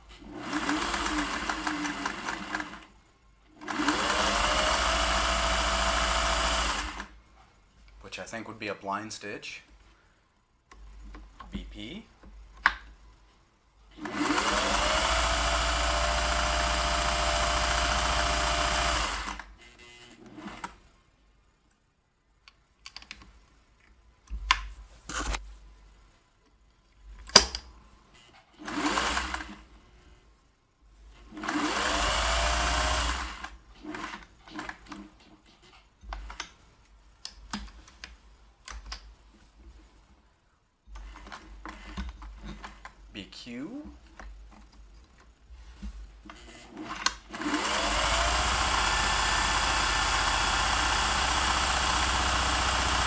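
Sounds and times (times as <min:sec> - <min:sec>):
sewing machine running: 0:00.2 - 0:02.9, 0:03.6 - 0:07.1, 0:14.0 - 0:20.8, 0:28.6 - 0:29.7, 0:31.3 - 0:34.7, 0:46.5 - 0:53.0.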